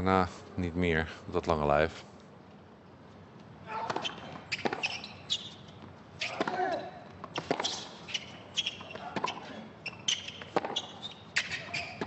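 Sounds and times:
shoe squeaks: 3.7s - 12.0s
ball bouncing on hard court: 3.8s - 5.1s, 6.2s - 9.5s, 10.1s - 12.0s
racket hitting tennis ball: 3.8s - 5.1s, 6.2s - 9.5s, 10.2s - 12.0s.

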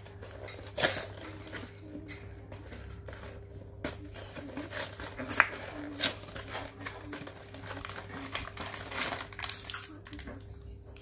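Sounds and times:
cardboard box rustling and crinkling: 2.6s - 9.5s.

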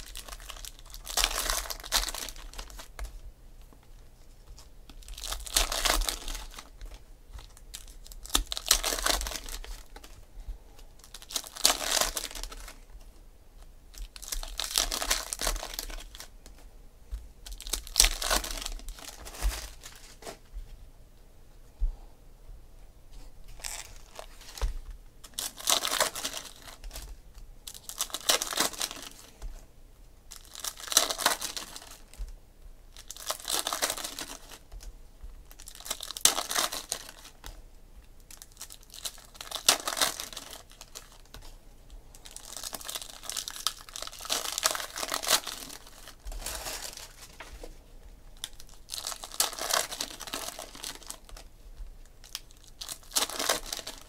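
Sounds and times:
foil wrappers tearing and crinkling: 0.0s - 3.1s, 4.5s - 10.2s, 11.0s - 12.9s, 13.9s - 16.3s, 17.4s - 20.4s, 23.6s - 29.5s, 30.3s - 32.2s, 32.9s - 34.7s, 35.5s - 37.6s, 38.2s - 41.6s, 42.2s - 47.6s, 48.4s - 51.5s, 52.2s - 54.0s.

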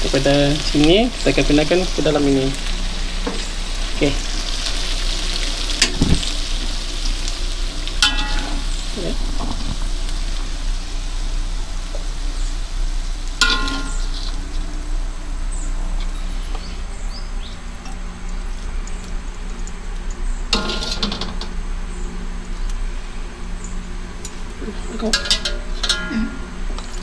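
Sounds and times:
steady low hum: 0.0s - 27.0s
metal ladle clinking on cookware: 13.4s - 14.2s, 25.1s - 26.5s.

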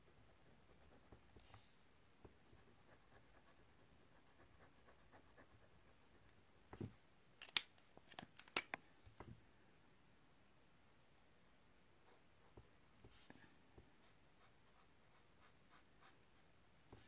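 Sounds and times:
sharp clicks of pens handled: 7.4s - 8.8s.

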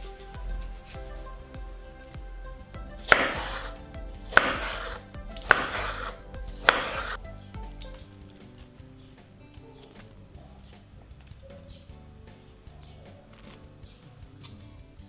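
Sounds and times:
knife chopping on wooden board: 3.0s - 7.2s.

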